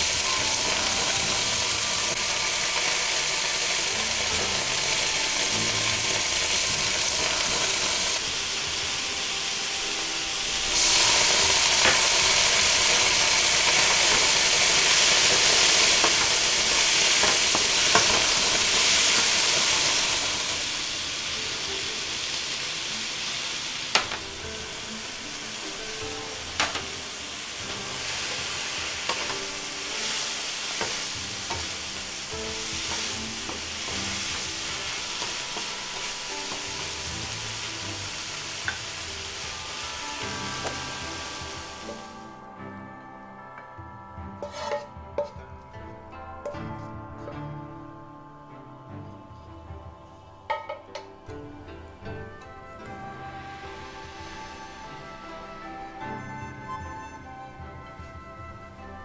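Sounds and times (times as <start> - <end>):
food sizzling in a wok: 0.0 - 43.7, 44.3 - 45.4, 50.0 - 59.0
spatula tapping on wok: 17.1 - 20.0, 24.0 - 24.3, 28.8 - 37.3, 40.6 - 42.1, 50.5 - 51.1.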